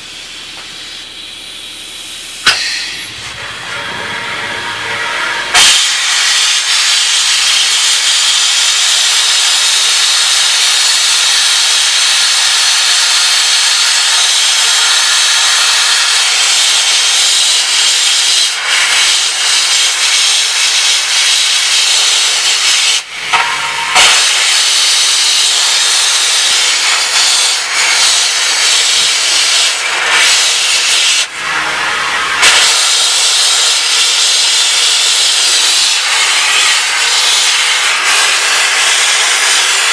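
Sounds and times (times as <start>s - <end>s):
low hum: 0.0s - 5.6s
abrasive blaster hissing: 2.0s - 39.9s.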